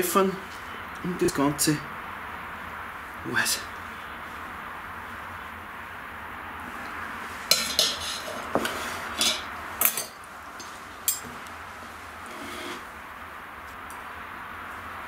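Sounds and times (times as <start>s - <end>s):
cutlery clinking on plate: 7.5s - 11.3s.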